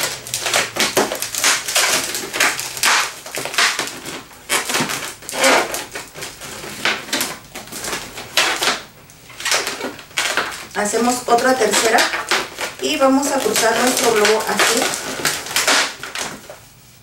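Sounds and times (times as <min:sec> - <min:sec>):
balloon squeaking as it is twisted: 0:00.0 - 0:16.8.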